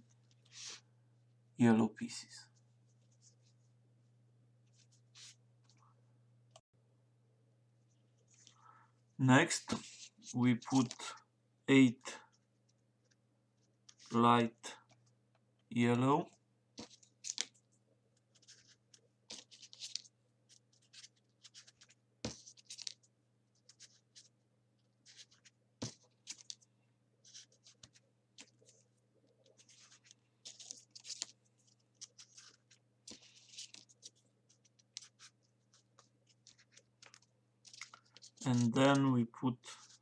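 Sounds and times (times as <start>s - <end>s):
paper rustling and scratching: 4.7s - 5.8s, 9.6s - 11.2s, 13.1s - 14.2s, 16.8s - 40.0s.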